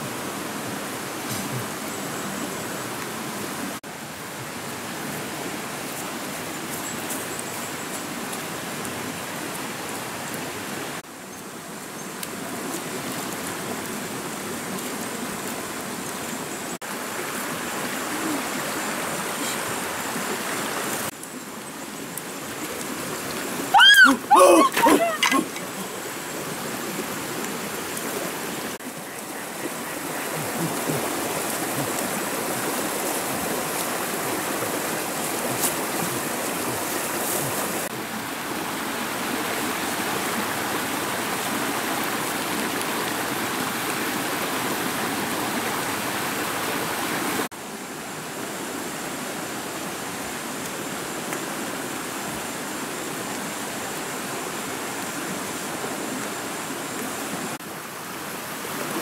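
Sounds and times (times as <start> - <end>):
mountain stream rushing: 0.0 - 59.0.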